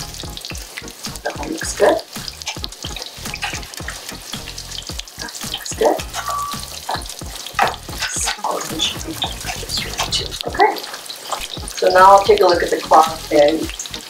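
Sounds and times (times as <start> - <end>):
chicken frying in hot oil: 0.0 - 14.0
oil spurting as cutlets turn: 0.0 - 14.0.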